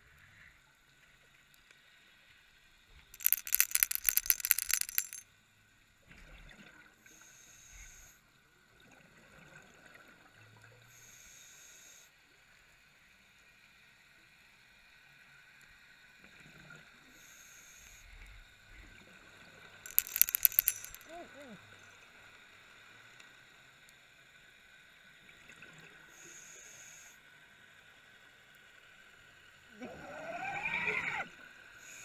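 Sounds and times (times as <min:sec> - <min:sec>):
faint hisses: 0:07.0 - 0:08.3, 0:10.8 - 0:12.2, 0:17.0 - 0:18.2, 0:26.0 - 0:27.4.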